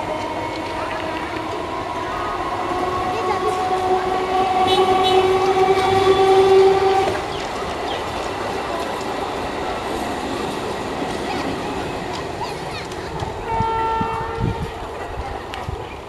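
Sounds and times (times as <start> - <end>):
locomotive horn blast: 0.0 - 7.3, 13.4 - 14.8
train rumbling on rails: 0.0 - 16.0.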